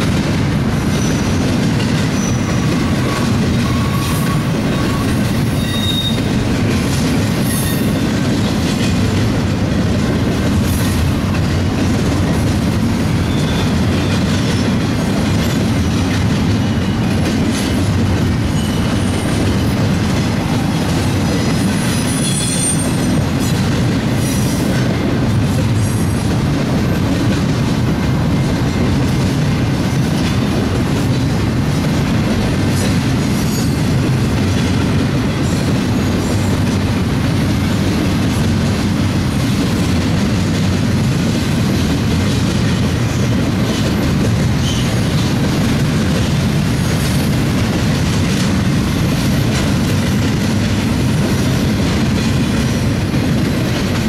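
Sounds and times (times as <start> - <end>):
train wheels rumbling on rails: 0.0 - 54.0
high wheel squeals: 2.1 - 6.3, 13.2 - 14.8, 18.5 - 19.8, 21.4 - 23.2, 33.3 - 33.9.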